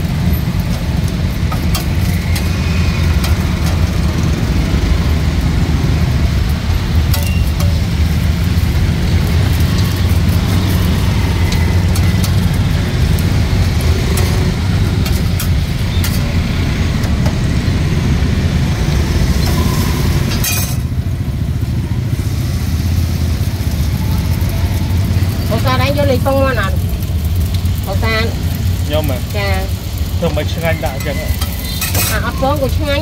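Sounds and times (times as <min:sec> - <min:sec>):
metal spatula scraping iron pan: 0:20.3 - 0:20.9, 0:30.7 - 0:32.7.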